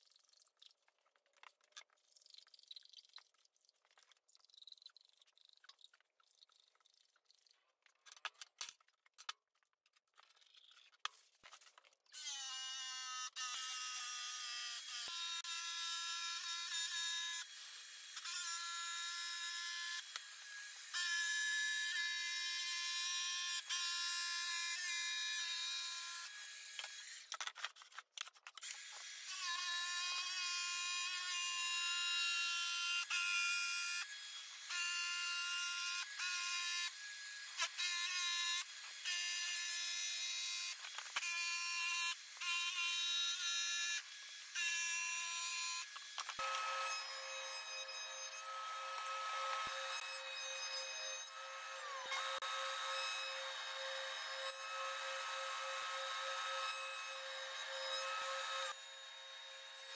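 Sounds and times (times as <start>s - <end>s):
jigsaw motor whine: 12.1s - 27.4s, 28.6s - 59.9s.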